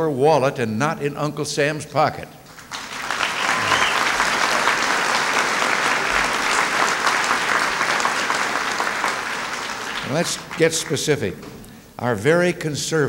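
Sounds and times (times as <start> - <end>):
audience applauding: 2.5 - 11.0.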